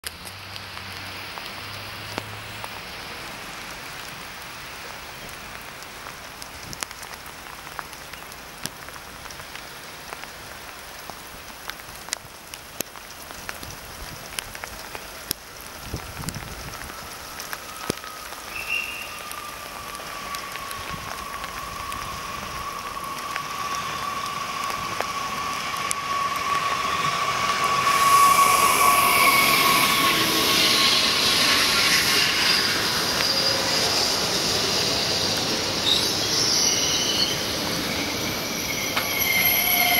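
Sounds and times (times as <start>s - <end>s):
rain falling: 0.0s - 39.9s
electric train whine: 16.2s - 39.9s.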